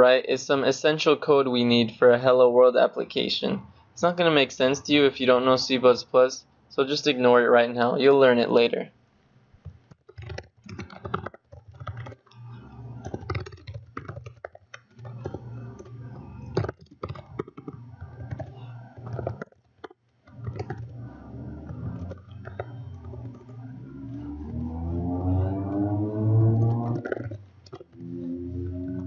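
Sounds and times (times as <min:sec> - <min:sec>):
computer keyboard typing: 0:09.8 - 0:24.7, 0:26.4 - 0:28.0
steady low hum: 0:12.3 - 0:13.3, 0:14.9 - 0:19.4, 0:20.3 - 0:29.0.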